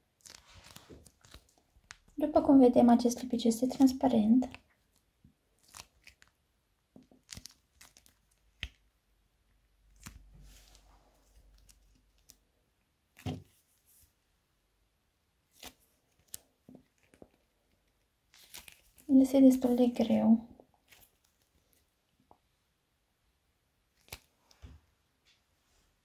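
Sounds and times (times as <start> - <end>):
plastic tube crinkling and clicking: 0.1 - 2.2, 3.7 - 9.0, 9.6 - 12.5, 15.6 - 19.1, 23.9 - 24.8
soft rustle: 0.2 - 2.2, 9.9 - 12.4, 13.1 - 14.4, 15.4 - 22.2.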